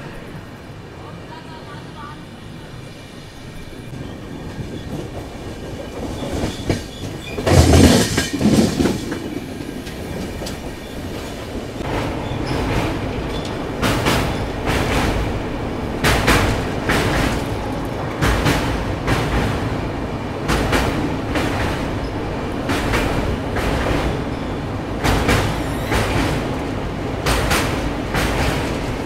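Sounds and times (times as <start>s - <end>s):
train rumble: 0.0s - 29.0s
wheels clattering over rail joints: 4.5s - 19.6s.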